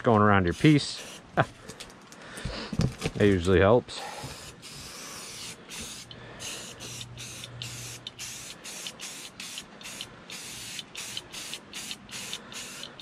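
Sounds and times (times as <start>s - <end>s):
spray paint can hissing: 0.5s - 1.3s, 4.2s - 13.0s.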